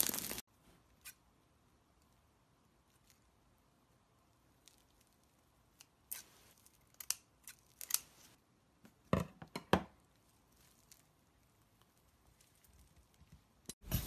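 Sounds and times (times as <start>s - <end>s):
plastic crinkling: 0.0s - 0.4s.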